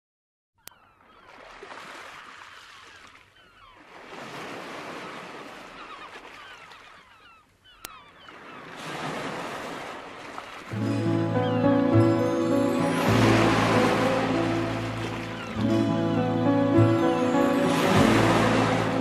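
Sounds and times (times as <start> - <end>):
surf washing in: 8.6 - 19.0.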